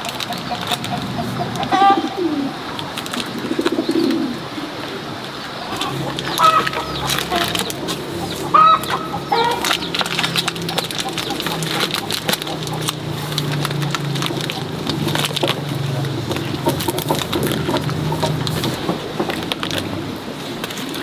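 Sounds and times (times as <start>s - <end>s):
fowl clucking: 0.2s - 2.6s, 5.7s - 15.1s
low cooing: 0.6s - 2.7s, 3.3s - 19.1s
mushrooms snapping off bags: 9.5s - 18.5s.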